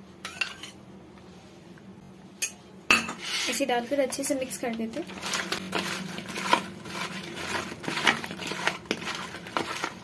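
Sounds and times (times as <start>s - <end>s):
hand mixing food squishes: 3.6s - 10.0s.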